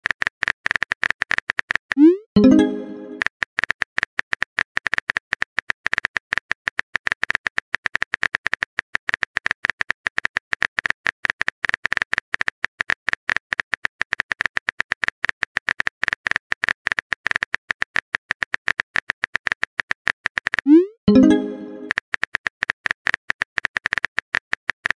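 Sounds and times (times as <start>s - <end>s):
keyboard typing clicks: 0.7s - 3.3s, 15.6s - 24.9s.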